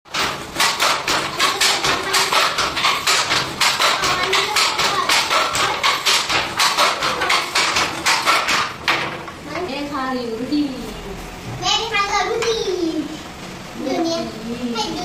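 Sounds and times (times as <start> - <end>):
wooden handloom clacking: 0.1 - 9.2.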